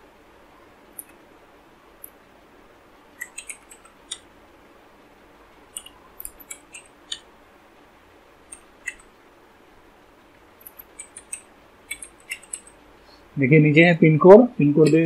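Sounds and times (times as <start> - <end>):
computer keyboard typing: 3.2 - 4.3, 5.7 - 7.3, 8.5 - 9.1, 10.6 - 12.8.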